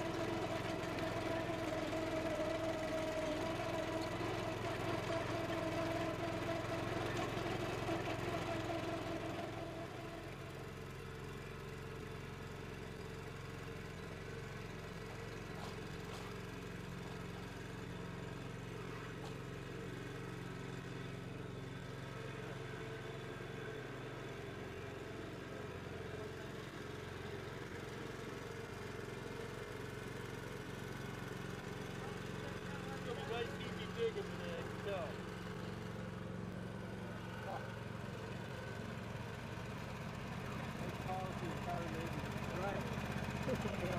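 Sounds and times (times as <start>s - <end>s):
trencher engine running: 0.0s - 43.9s.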